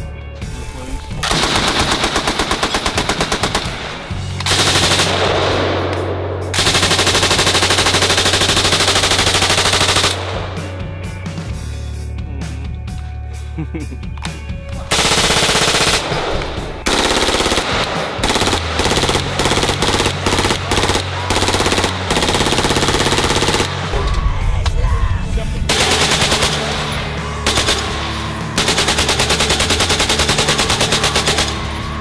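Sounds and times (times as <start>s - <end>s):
background music with bass: 0.0s - 32.0s
automatic gunfire bursts: 1.2s - 10.6s, 14.9s - 24.0s, 25.7s - 32.0s.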